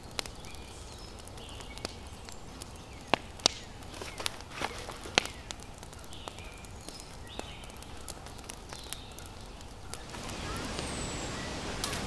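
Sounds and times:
campfire crackling: 0.0 - 12.0
steady background hiss: 8.2 - 12.0
high bird chirps: 9.9 - 12.0.

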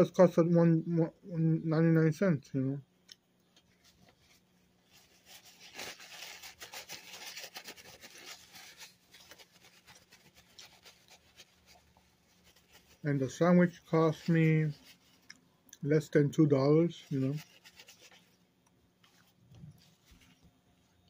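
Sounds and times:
faint steady hum: 0.0 - 21.0
paper wrapper crinkling: 3.6 - 15.4, 16.9 - 18.4.

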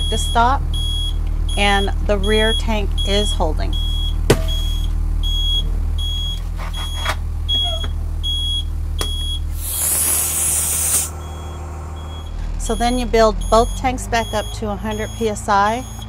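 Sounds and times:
bus engine running: 0.0 - 16.0
low-air warning buzzer beeping: 0.0 - 16.0
loud hiss of air: 9.6 - 11.2.

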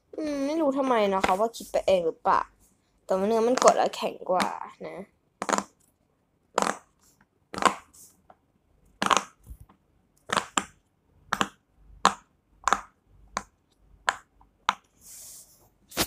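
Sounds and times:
fidget toy bubbles popping: 3.4 - 4.6, 9.0 - 9.6.

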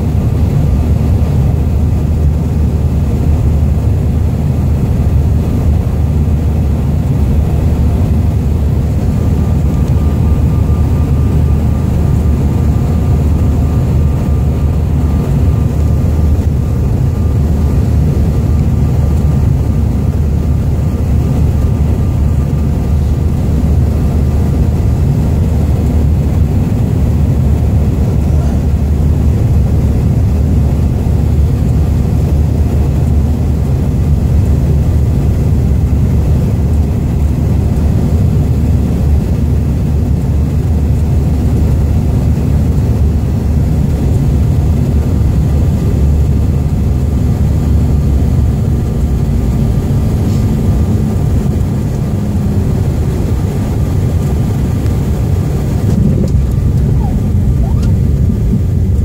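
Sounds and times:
airliner engines rumbling: 0.0 - 59.0
faint steady whine: 0.0 - 59.0
rushing air: 49.9 - 59.0.

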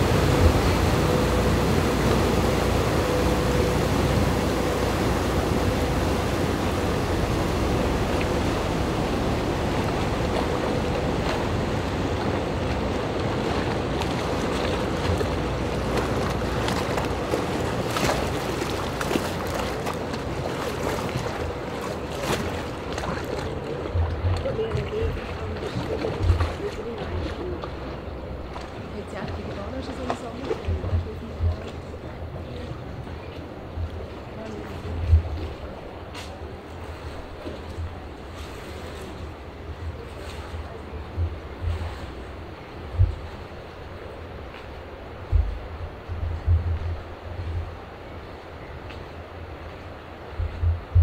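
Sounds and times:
wake rushing against shore: 0.0 - 28.9
ship engine hum: 0.0 - 51.0.

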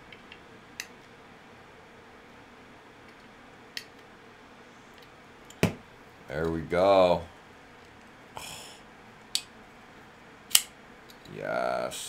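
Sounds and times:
folding knife clicking: 10.5 - 10.7.

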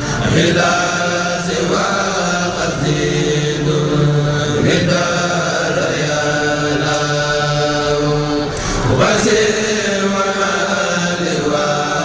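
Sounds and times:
devotional chanting: 0.0 - 12.0.

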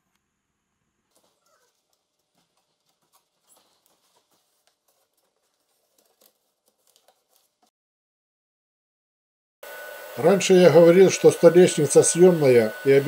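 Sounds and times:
paper rustling and crinkling: 1.1 - 7.7.

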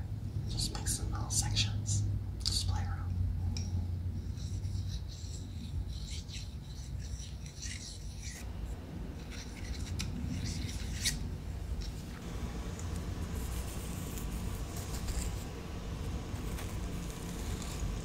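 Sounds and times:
chopsticks scratching through hair: 4.2 - 8.5, 9.2 - 12.1, 12.8 - 15.6, 16.3 - 18.0.

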